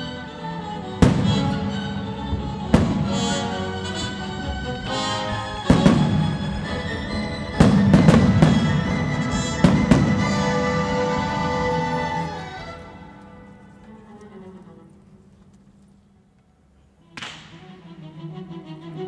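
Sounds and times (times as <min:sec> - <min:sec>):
orchestra with strings playing: 0:00.0 - 0:15.7, 0:16.8 - 0:19.0
sharp firework cracks: 0:01.0 - 0:03.8, 0:17.2 - 0:17.6
firework bangs: 0:01.0 - 0:12.8.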